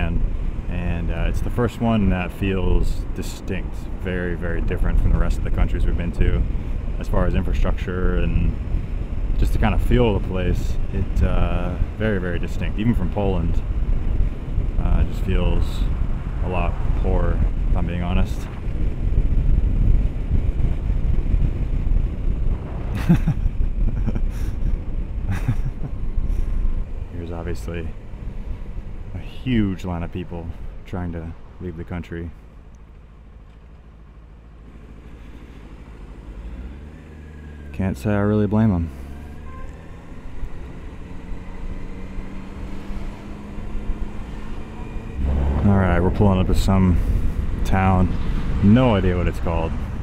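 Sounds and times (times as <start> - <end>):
motorcycle engine rumble: 0.0 - 50.0
wind buffeting microphone: 13.4 - 30.8, 41.7 - 50.0.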